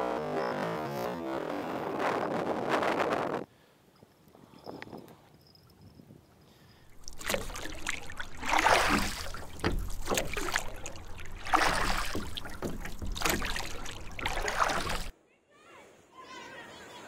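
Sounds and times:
water splashing around kayak: 6.9s - 15.1s.

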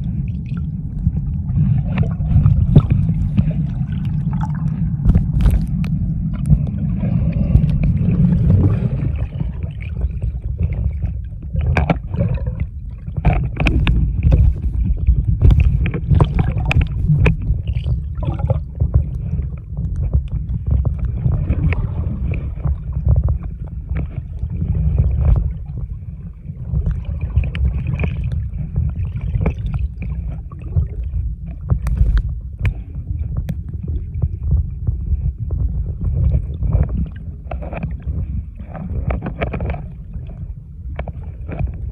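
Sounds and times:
underwater rumble of moving water: 0.0s - 41.9s
small clicks and crackles: 0.9s - 41.9s.

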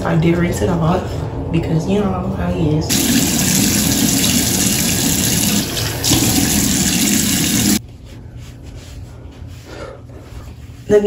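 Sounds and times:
tap water pouring into sink: 2.9s - 7.8s.

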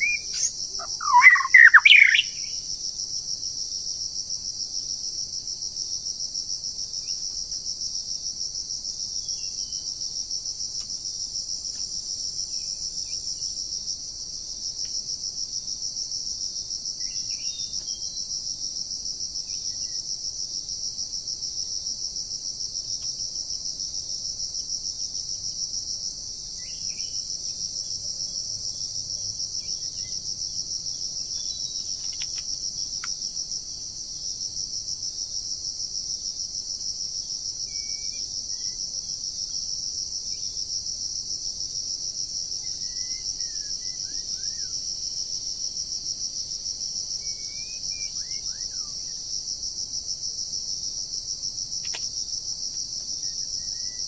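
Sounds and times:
faint bird chirps: 0.0s - 2.6s
insect chorus trilling: 0.0s - 54.0s.

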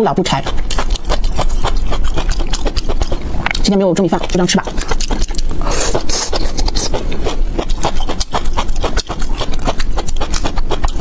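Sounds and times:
wet chewing: 0.0s - 11.0s
slurping food: 4.3s - 9.8s.

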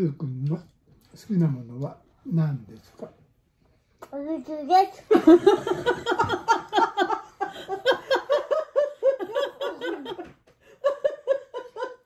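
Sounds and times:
hearty adult laughter: 5.2s - 12.0s.

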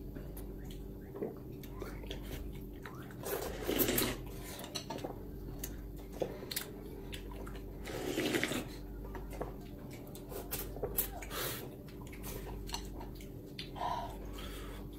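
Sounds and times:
slurping noodles: 3.0s - 4.6s, 7.8s - 8.8s.

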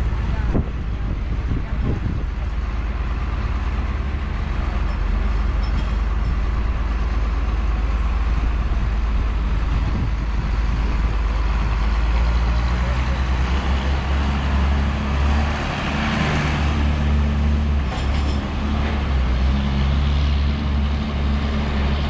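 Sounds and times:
heavy diesel machinery rumbling: 0.0s - 22.0s.

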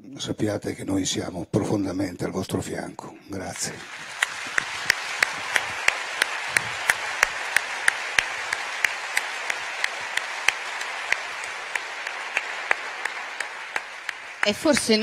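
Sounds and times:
audience applause: 3.4s - 15.0s.

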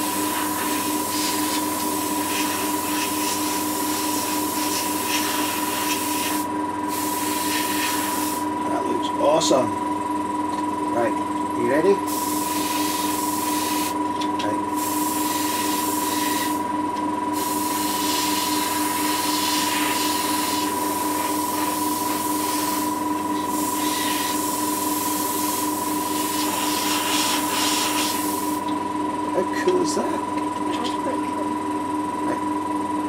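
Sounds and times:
airbrush hissing: 0.0s - 8.5s, 12.1s - 14.0s, 14.8s - 16.7s, 17.3s - 28.7s
machine hum: 0.0s - 33.0s.

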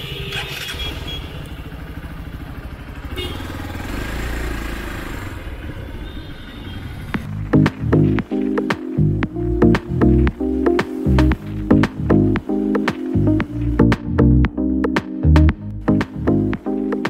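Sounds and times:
motorcycle engine rumble: 0.0s - 17.0s
loud music with a beat: 7.2s - 17.0s.

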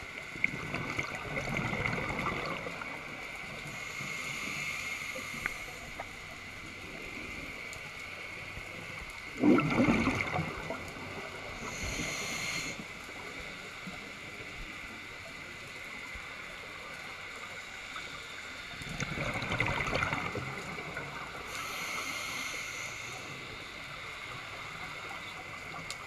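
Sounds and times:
underwater hiss and crackle: 0.0s - 26.0s
exhaled bubbles rushing: 0.4s - 3.0s, 9.4s - 11.4s, 18.9s - 21.3s
regulator inhale hiss: 3.5s - 8.7s, 11.3s - 16.4s, 21.3s - 25.5s.

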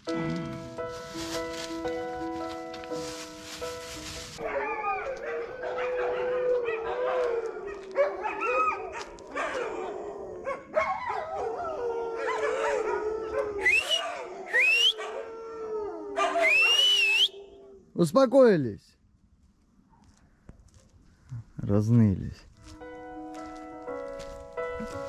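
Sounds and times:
wolves whining and yelping: 4.4s - 17.8s
wolves howling: 4.4s - 18.0s.

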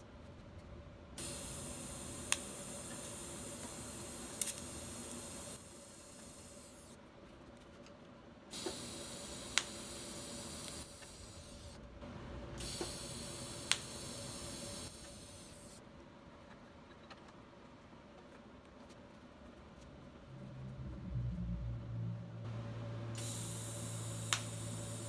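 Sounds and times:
welding arc crackle: 1.2s - 7.0s, 8.5s - 11.8s, 12.6s - 15.8s, 23.1s - 25.0s
welding arc hissing: 1.2s - 7.0s, 8.5s - 11.8s, 12.5s - 15.8s, 23.0s - 25.0s.

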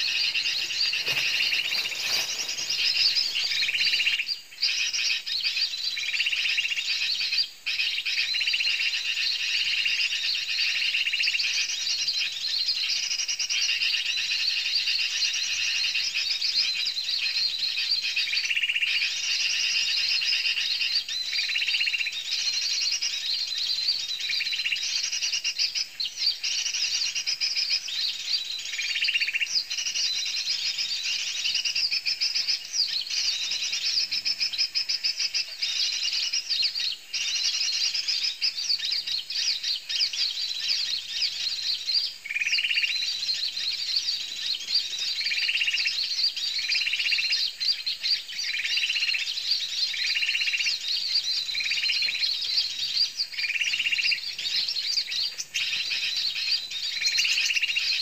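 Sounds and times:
low rough bird call: 0.0s - 5.6s
small birds chirping: 0.0s - 58.0s.

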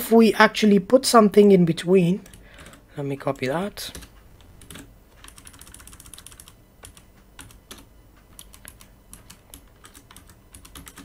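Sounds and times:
computer keyboard typing: 2.2s - 11.0s.

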